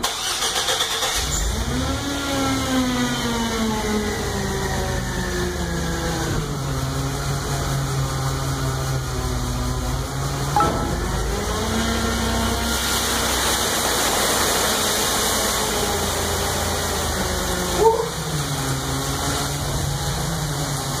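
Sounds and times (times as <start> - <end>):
machine engine running: 6.8 - 21.0
water and slush gushing: 11.2 - 21.0.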